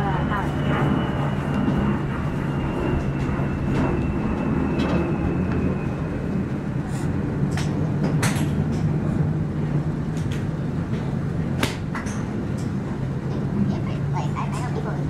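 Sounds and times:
low machine hum: 0:00.0 - 0:15.0
golf balls struck with clubs: 0:11.6 - 0:12.4.

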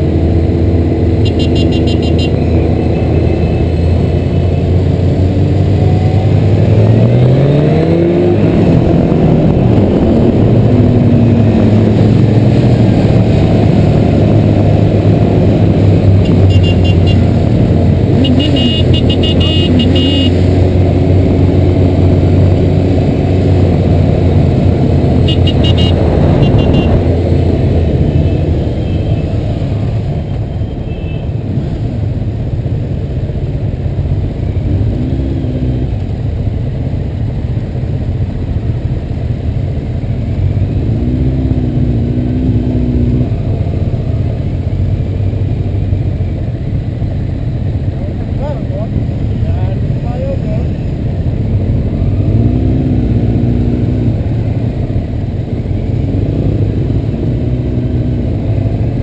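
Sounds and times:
motorcycle engines rumbling: 0:00.0 - 0:59.0
motorcycle horn toots: 0:01.2 - 0:02.4, 0:16.2 - 0:17.3, 0:18.2 - 0:20.4, 0:25.2 - 0:27.0.

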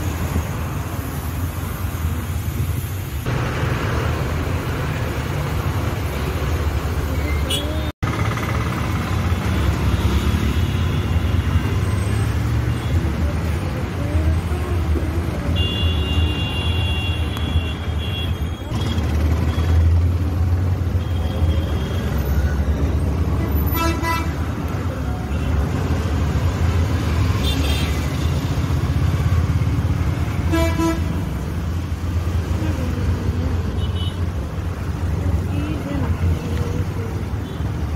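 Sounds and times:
low rumble of road traffic: 0:00.0 - 0:37.9
vehicle horn: 0:15.6 - 0:18.4, 0:30.5 - 0:31.2.

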